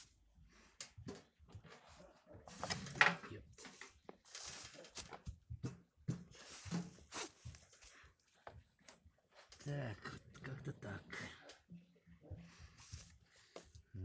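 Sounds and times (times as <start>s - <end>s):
scraping and rustling: 1.6s - 5.4s, 6.1s - 8.0s.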